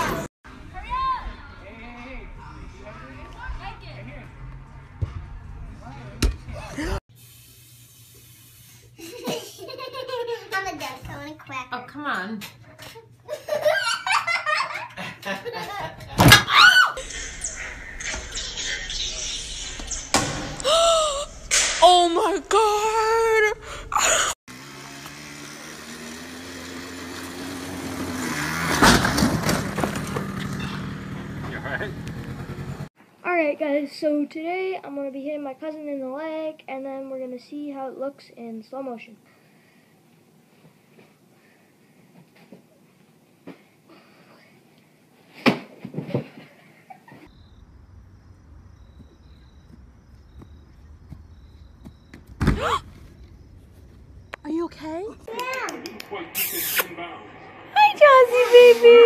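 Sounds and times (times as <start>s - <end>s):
person crying out in pain: 20.6s - 21.4s, 22.7s - 24.4s
small engine running: 24.5s - 32.9s.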